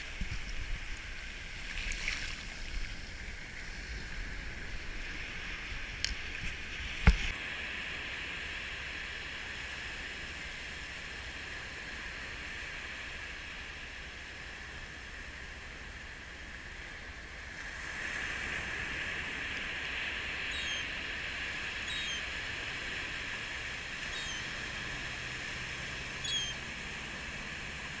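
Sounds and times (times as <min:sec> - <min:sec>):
surf washing over sand: 0:00.0 - 0:28.0
gull calls: 0:20.5 - 0:20.9, 0:21.8 - 0:22.3, 0:24.0 - 0:24.6, 0:26.2 - 0:26.6.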